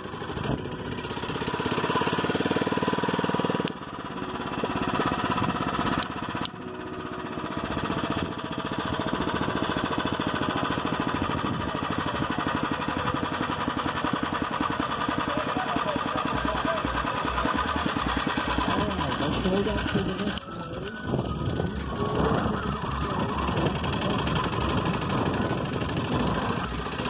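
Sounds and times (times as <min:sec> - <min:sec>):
small motorized bicycle engine running: 0:00.0 - 0:27.0.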